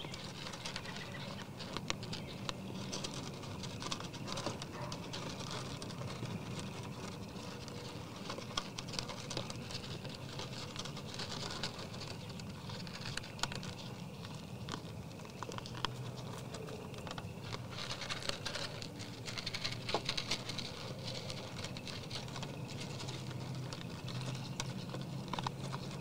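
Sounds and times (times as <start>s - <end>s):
deer chewing feed: 0.0s - 26.0s.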